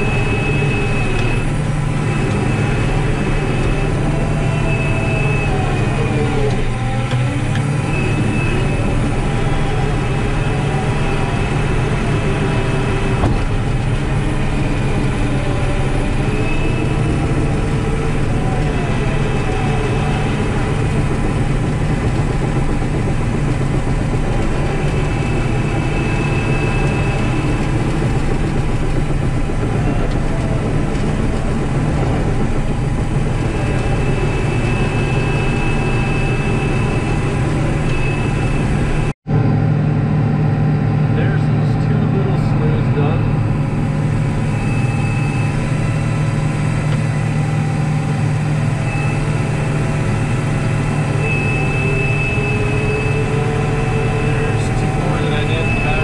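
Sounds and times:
diesel engine running: 0:00.0 - 0:56.0
faint high whine: 0:24.2 - 0:39.2, 0:41.2 - 0:56.0.

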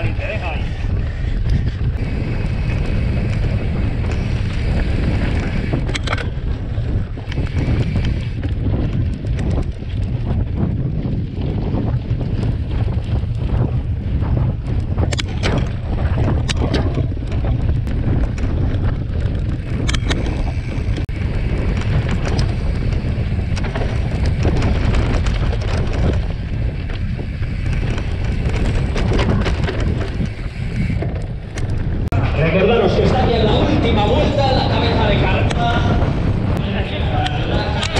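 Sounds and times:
bike clicks and rattles: 0:00.0 - 0:37.9
wind rumble on microphone: 0:00.0 - 0:37.9.

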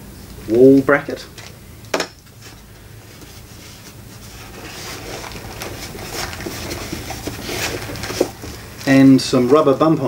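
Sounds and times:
packaging rustling and crinkling: 0:02.3 - 0:10.0
hands rummaging in cardboard box: 0:02.4 - 0:10.0.

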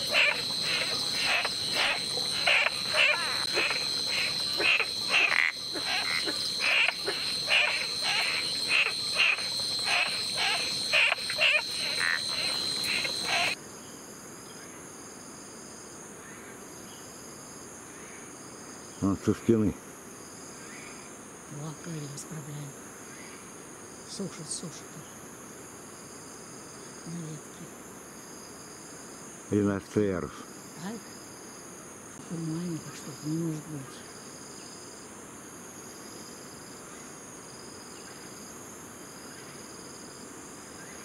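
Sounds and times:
repeated animal call: 0:00.0 - 0:13.6
high insect drone: 0:00.0 - 0:41.0.

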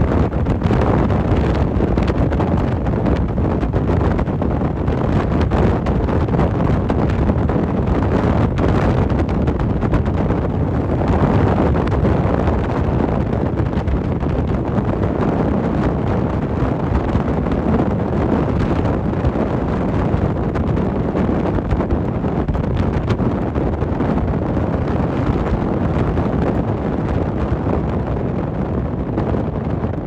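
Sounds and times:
low rumble of the ride: 0:00.0 - 0:30.0
wind rushing over microphone: 0:00.0 - 0:30.0.

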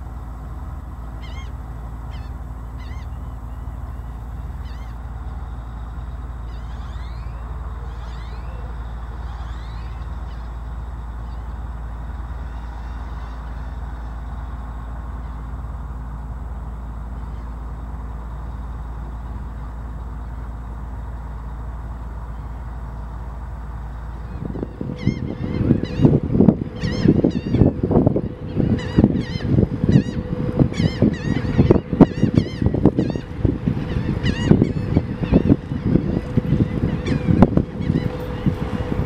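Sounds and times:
low rumble: 0:00.0 - 0:39.0
birds honking: 0:01.0 - 0:39.0
faint bird chirps: 0:01.2 - 0:11.6.

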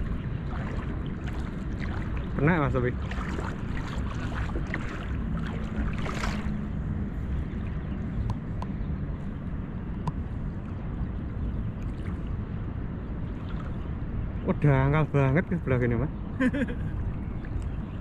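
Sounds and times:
water sloshing: 0:00.0 - 0:14.4
wind rumbling on microphone: 0:00.0 - 0:18.0.

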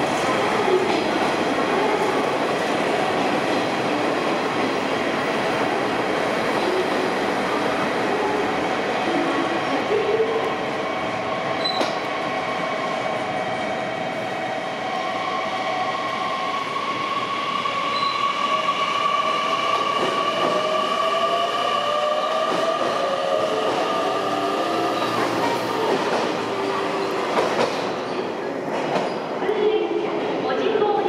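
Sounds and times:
train running noise: 0:21.9 - 0:31.0.

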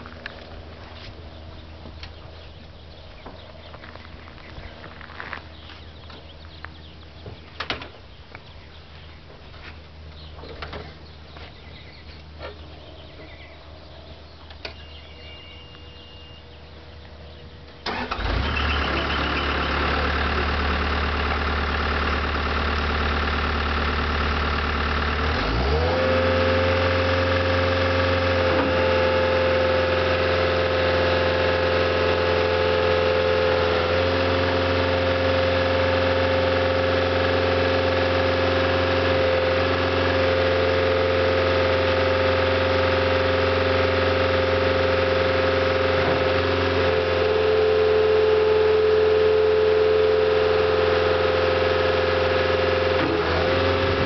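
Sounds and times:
diesel engine starting and idling: 0:17.5 - 0:54.0.

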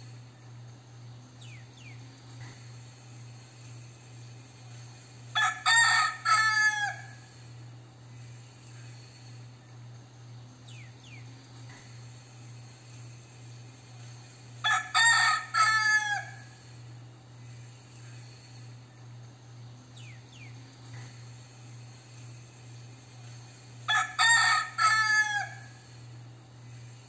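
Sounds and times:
rooster crowing: 0:05.3 - 0:07.4, 0:14.6 - 0:16.7, 0:23.9 - 0:26.0.

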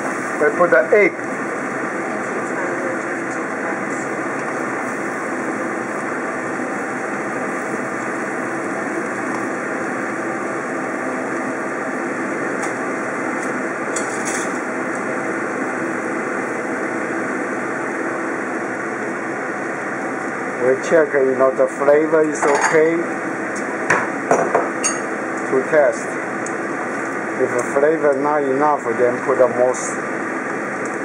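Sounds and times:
stir-fry sizzling in wok: 0:00.0 - 0:20.6.

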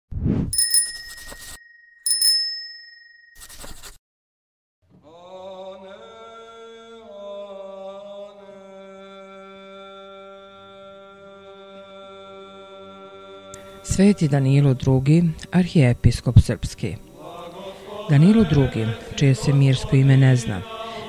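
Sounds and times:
notification bell ding: 0:00.6 - 0:03.5.

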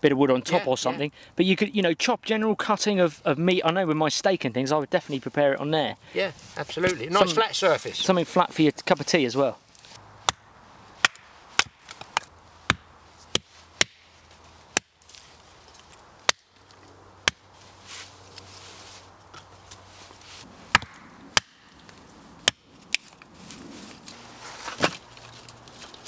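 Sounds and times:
hatchet chopping kindling: 0:10.2 - 0:15.0, 0:16.2 - 0:16.5, 0:17.2 - 0:17.5, 0:20.7 - 0:23.0.

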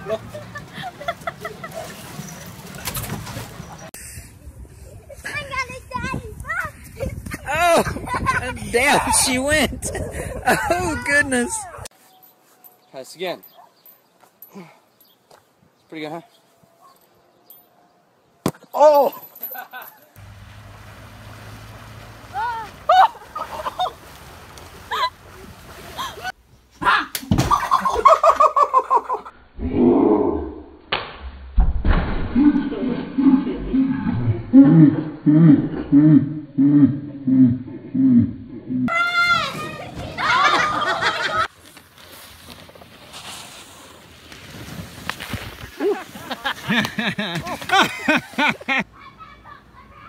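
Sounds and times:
people laughing: 0:00.0 - 0:02.0, 0:09.8 - 0:11.1, 0:22.9 - 0:24.0, 0:27.5 - 0:29.3, 0:40.1 - 0:41.5, 0:45.8 - 0:49.6
faint water noise: 0:20.2 - 0:26.4
people shouting: 0:22.3 - 0:23.2, 0:38.9 - 0:40.9
sharp smack: 0:30.9 - 0:32.4
soft rushing hiss: 0:41.5 - 0:46.9.

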